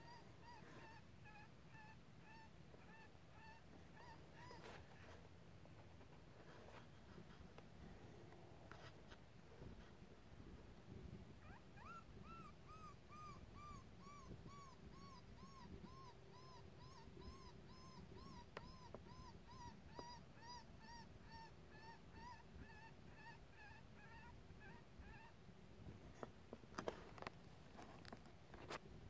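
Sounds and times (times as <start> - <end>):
coyote yelping: 0.0 - 5.0, 11.4 - 25.4.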